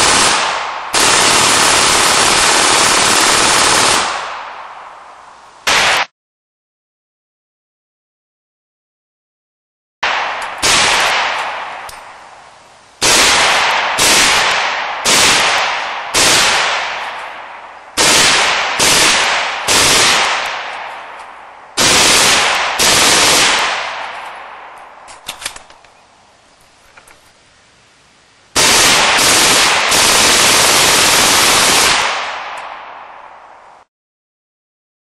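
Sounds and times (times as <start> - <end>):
automatic gunfire bursts: 0.0 - 4.4, 10.6 - 11.4, 13.0 - 17.2, 18.0 - 20.8, 21.8 - 24.1, 28.6 - 32.4.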